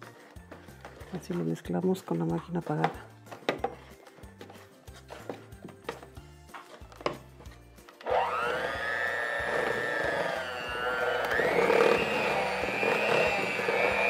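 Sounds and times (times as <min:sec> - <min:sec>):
electric hand mixer whining: 0:08.0 - 0:14.0.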